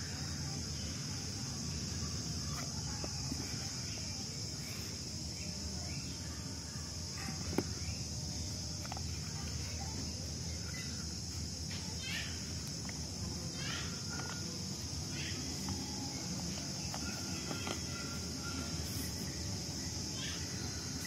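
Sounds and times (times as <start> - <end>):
insect chorus drone: 0.0 - 21.0.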